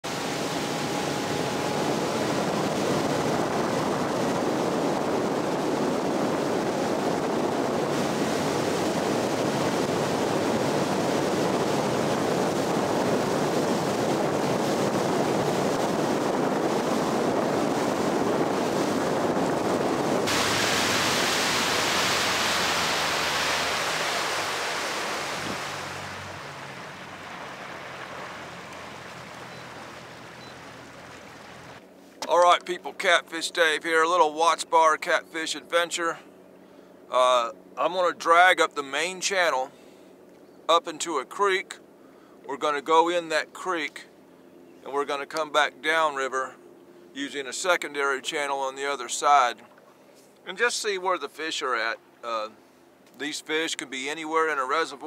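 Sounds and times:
rushing water: 0.0s - 31.8s
wind on microphone: 0.0s - 31.8s
outboard motor boat running: 0.0s - 55.0s.

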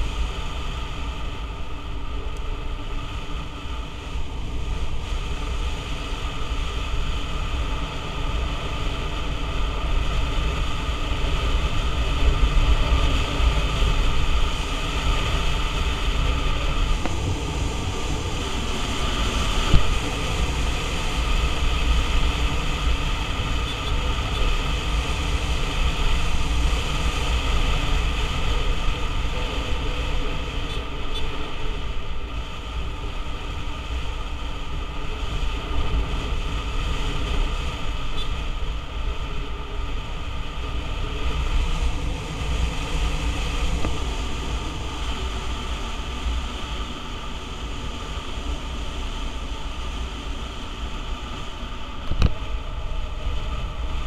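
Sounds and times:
scooter engine running: 0.0s - 49.5s
wind buffeting microphone: 0.0s - 54.0s.

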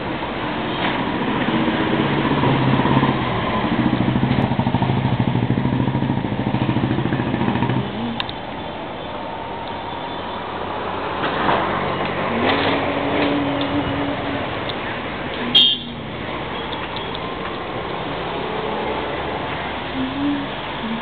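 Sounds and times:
street noise: 0.0s - 21.0s.

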